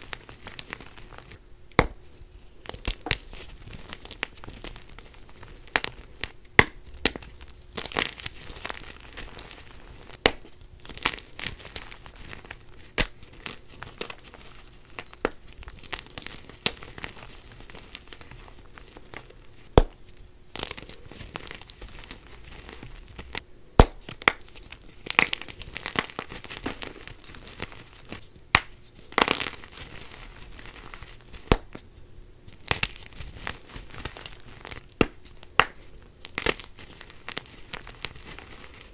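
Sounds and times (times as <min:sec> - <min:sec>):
chalk crumbling and crunching: 0:00.0 - 0:38.9
sharp cracks of chalk breaking: 0:31.4 - 0:31.8.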